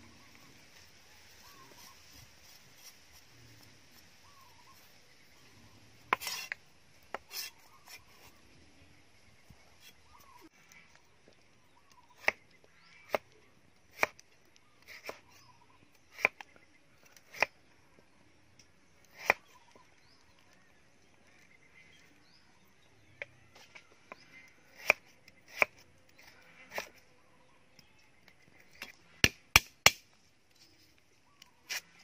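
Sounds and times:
cleaver chopping on wooden block: 0:28.8 - 0:30.0.

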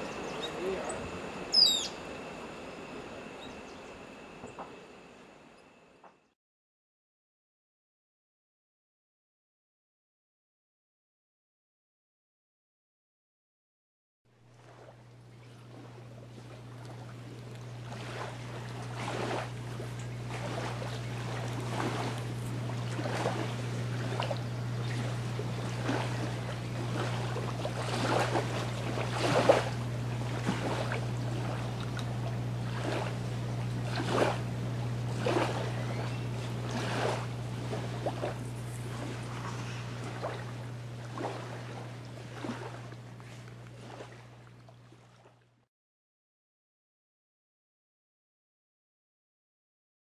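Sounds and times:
steady low hum: 0:00.0 - 0:06.3, 0:14.4 - 0:45.6
small waves washing on shore: 0:14.5 - 0:45.4.

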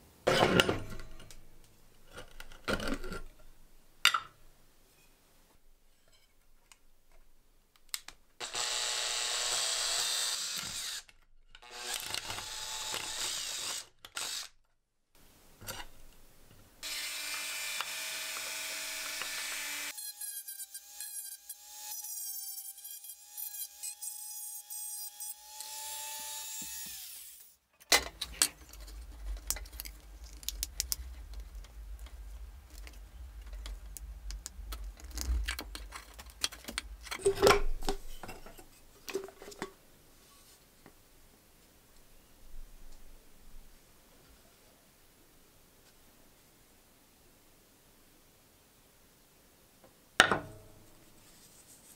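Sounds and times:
electric drill boring through metal: 0:08.4 - 0:11.0, 0:11.6 - 0:14.5, 0:16.8 - 0:20.0.

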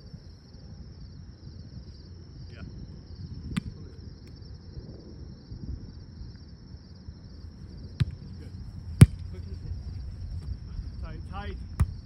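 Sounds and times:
insects chirring: 0:00.0 - 0:12.0
volleyball being hit: 0:09.0 - 0:09.3.

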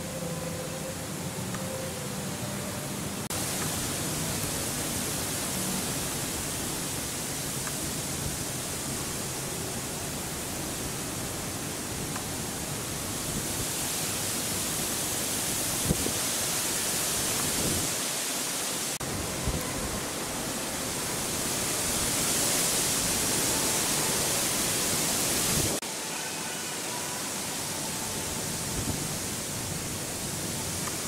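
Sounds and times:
steady rain: 0:00.0 - 0:31.0.

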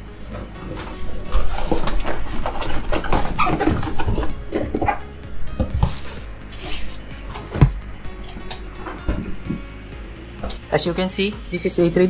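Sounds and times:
cardboard and paper rustling: 0:00.2 - 0:05.0, 0:05.6 - 0:07.8.

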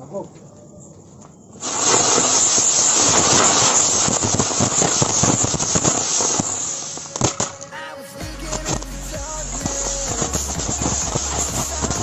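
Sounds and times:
crackle of small pops: 0:01.6 - 0:07.6
firecracker hissing sparks: 0:01.6 - 0:12.0.

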